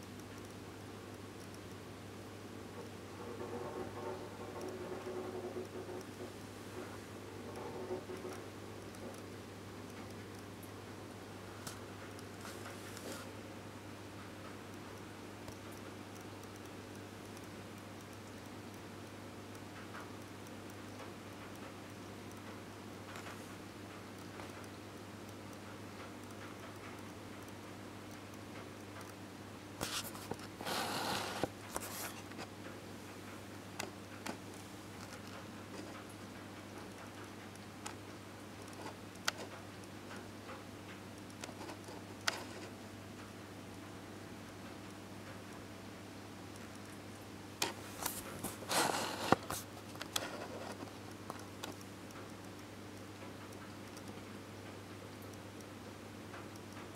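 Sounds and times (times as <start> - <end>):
steady low hum: 0.0 - 56.9
rustling scrape: 29.8 - 32.5, 47.7 - 50.9.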